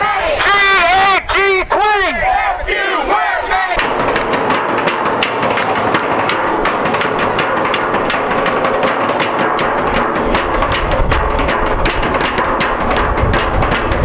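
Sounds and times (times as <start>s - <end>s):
people drumming on metal barrels: 3.8s - 14.0s.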